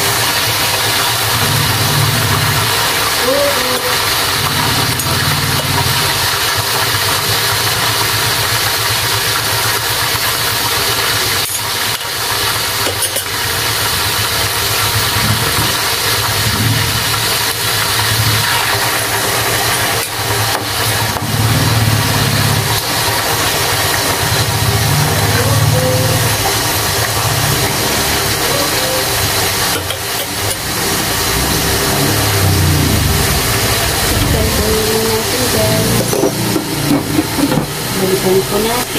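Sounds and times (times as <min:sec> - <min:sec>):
meat sizzling in hot oil: 0:00.0 - 0:38.9
low hum: 0:30.6 - 0:38.9.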